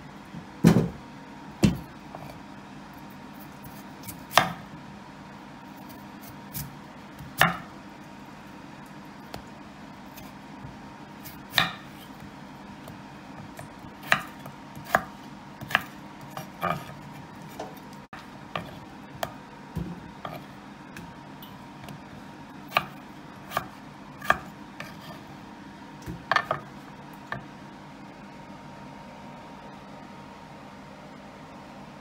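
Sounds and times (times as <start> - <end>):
faint steady hum: 0.0 - 32.0
knife cutting potato on board: 3.3 - 4.6, 5.8 - 7.7, 10.1 - 21.2, 22.7 - 25.3, 26.0 - 26.7.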